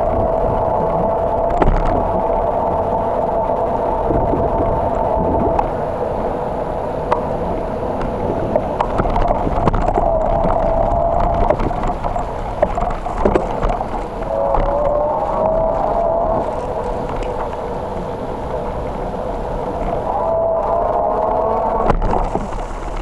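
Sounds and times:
wavering whine: 0.0 - 23.0
wind and road noise: 0.0 - 23.0
bicycle rattles and clicks: 8.8 - 15.0.

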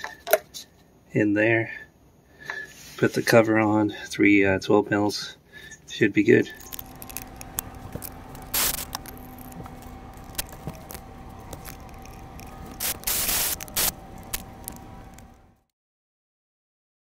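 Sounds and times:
faint steady hum: 5.0 - 15.7
ratchet rasping: 6.6 - 15.4
metal clicks and scrapes: 6.6 - 15.5.

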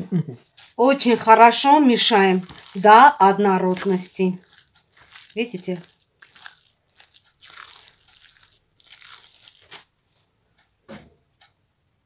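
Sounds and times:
wet meat mixture being worked: 0.5 - 9.8.

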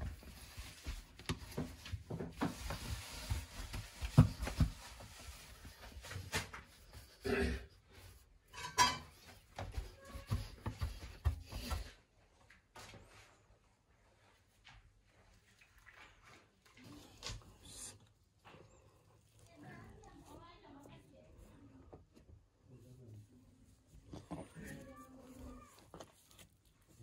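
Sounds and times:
flour scraping against wood: 0.0 - 7.2.

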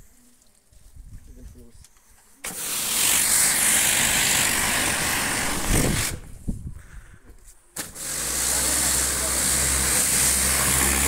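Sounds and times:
pressure washer spraying: 2.4 - 6.3, 7.8 - 11.0.

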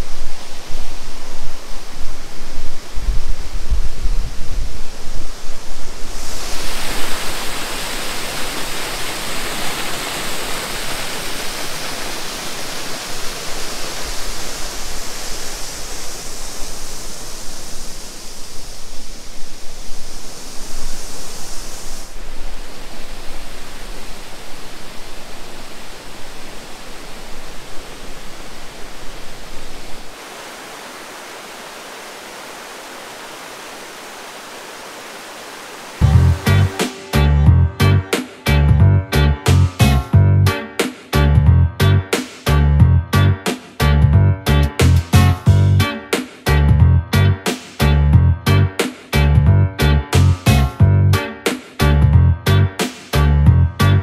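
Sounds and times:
wind rumble on microphone: 0.0 - 8.8
water over rocky cascade: 0.0 - 40.2
waterfall rushing: 0.0 - 41.2.

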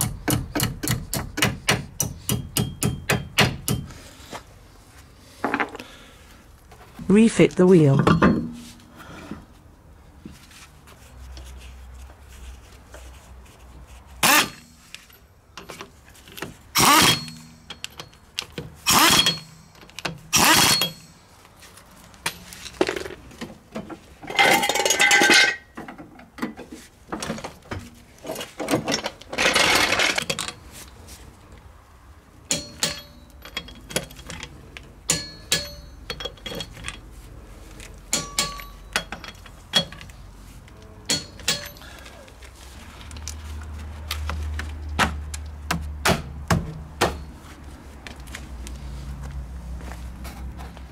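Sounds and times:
metal clinks and knocks: 7.9 - 8.8, 14.3 - 21.2, 22.1 - 26.6, 27.2 - 30.7, 32.5 - 37.2, 38.0 - 40.2, 41.1 - 42.1
rattling noises: 14.2 - 30.8.

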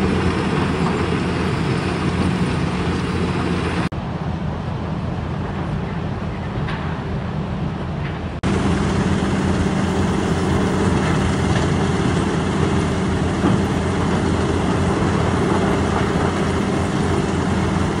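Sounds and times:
machinery hum: 0.0 - 18.0.

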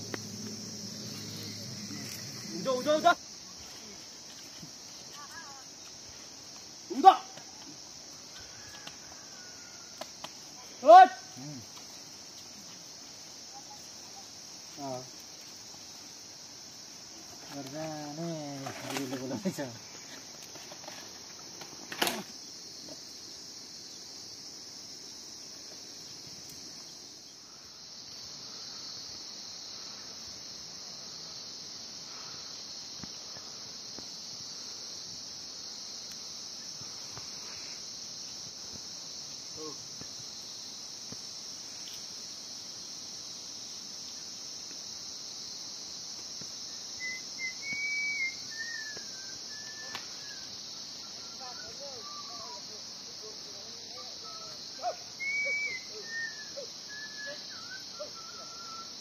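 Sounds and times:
insects chirring: 0.0 - 59.0
gliding whistle-like call: 47.0 - 50.5, 55.2 - 59.0.

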